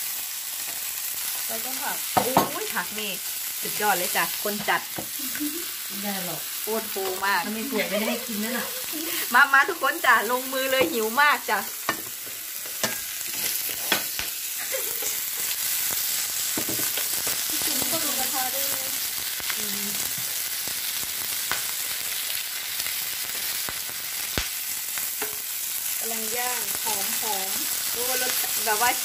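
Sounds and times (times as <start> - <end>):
meat sizzling on grill pan: 0.0 - 29.0
tongs clicking against pan: 25.2 - 25.5.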